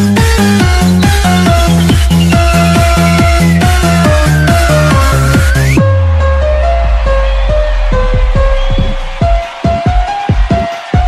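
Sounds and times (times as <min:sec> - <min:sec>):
fast kick drum beat: 0:00.0 - 0:05.8, 0:07.0 - 0:11.0.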